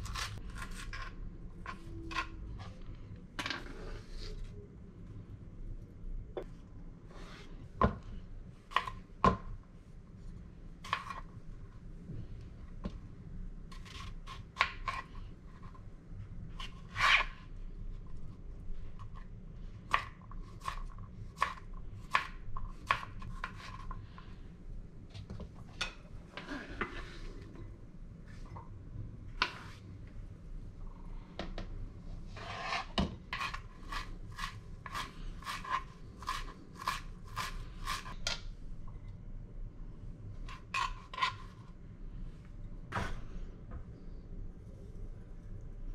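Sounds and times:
knife scraping: 0:00.0 - 0:02.8, 0:16.6 - 0:17.4, 0:32.3 - 0:38.2, 0:40.5 - 0:41.6.

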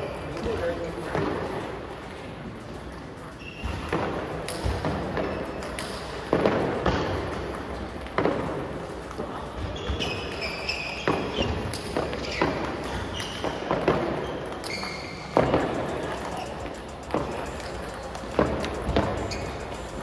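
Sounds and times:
table tennis balls clicking: 0:03.7 - 0:20.0
short high squeaks: 0:09.7 - 0:11.6, 0:14.2 - 0:18.0, 0:18.6 - 0:20.0.

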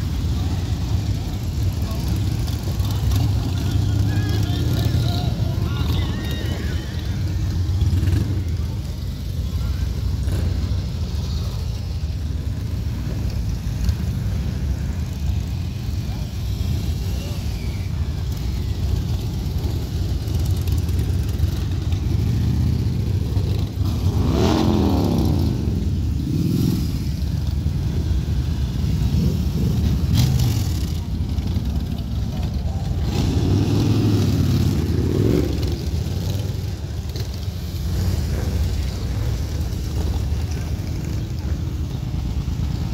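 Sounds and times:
motorcycle engines rumbling: 0:00.0 - 0:42.9
motorcycle passing by: 0:18.7 - 0:42.9.

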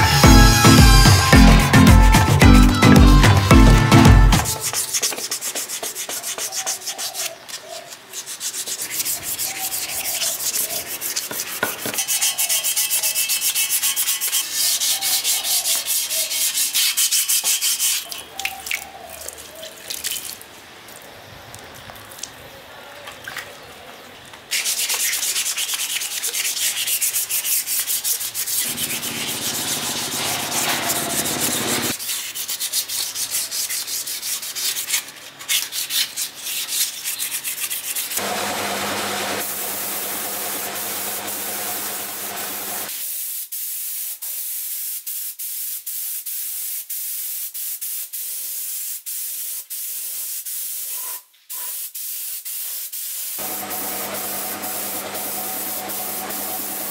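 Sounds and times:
sandpaper rubbing on metal: 0:00.0 - 0:18.2, 0:24.5 - 0:56.9
spray gun hissing: 0:28.6 - 0:32.0, 0:38.2 - 0:51.0, 0:51.7 - 0:56.9.

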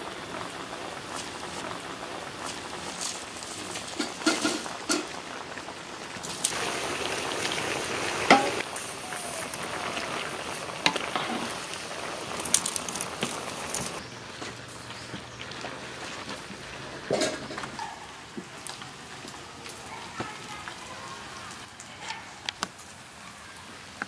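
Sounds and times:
offal sizzling in a wok: 0:00.0 - 0:21.7
spatula scraping and knocking pan: 0:08.3 - 0:08.6.

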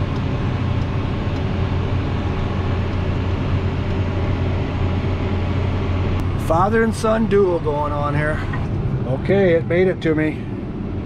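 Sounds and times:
tractor engine low drone: 0:00.0 - 0:11.0.

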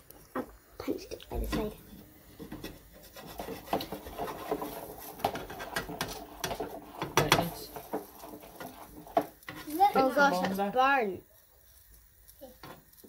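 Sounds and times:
metal spatula scraping frying pan: 0:01.5 - 0:10.7.

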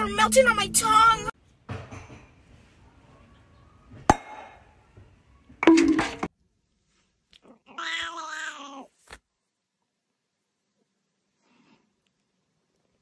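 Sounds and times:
cat meowing: 0:07.5 - 0:08.9.

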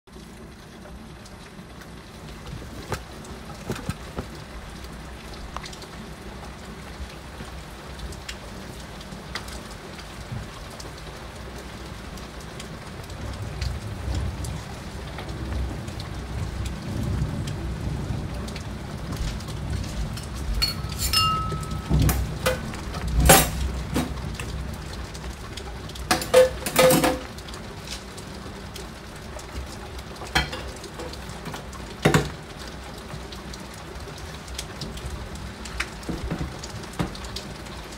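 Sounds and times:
heavy rain against window: 0:00.1 - 0:37.9
thunder rumble: 0:13.0 - 0:27.4.

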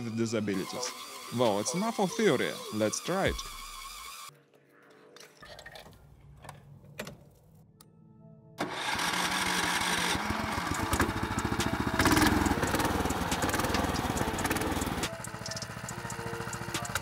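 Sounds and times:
small engine running: 0:00.0 - 0:04.3, 0:08.6 - 0:17.0.

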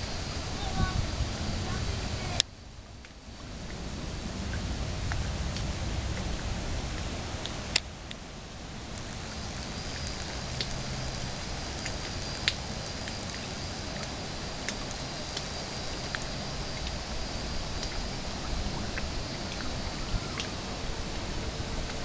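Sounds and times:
faint high whine: 0:00.0 - 0:22.0
steady outdoor hiss: 0:00.0 - 0:22.0.

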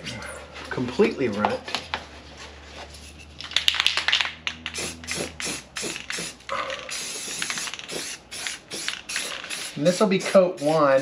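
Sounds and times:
spray can ball rattling: 0:03.0 - 0:11.0.

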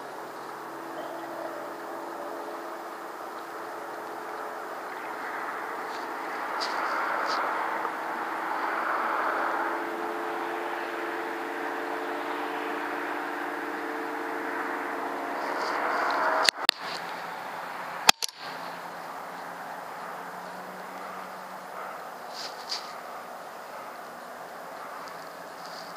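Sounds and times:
steady hum with hiss: 0:00.0 - 0:25.9
sharp clicks: 0:18.0 - 0:18.6.

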